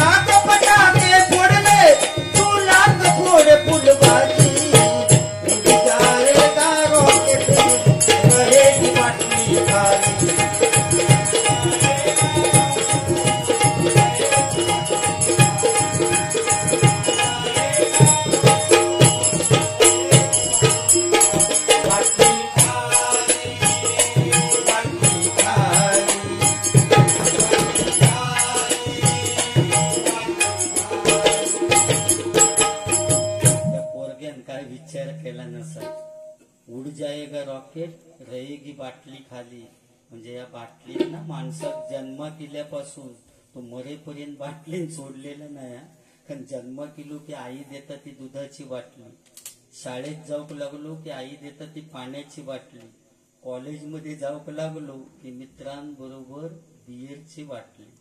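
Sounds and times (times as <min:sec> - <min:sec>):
person singing: 0:00.0 - 0:10.7, 0:17.0 - 0:19.0, 0:21.5 - 0:32.1
hand drum rhythm: 0:00.0 - 0:33.9
high ringing percussion: 0:00.0 - 0:34.3, 0:35.7 - 0:36.5, 0:41.3 - 0:42.4.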